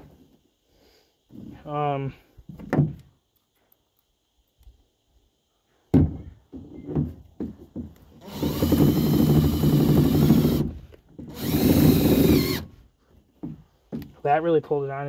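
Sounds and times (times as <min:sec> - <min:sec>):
impact driver driving screw: 0:11.3 - 0:12.6.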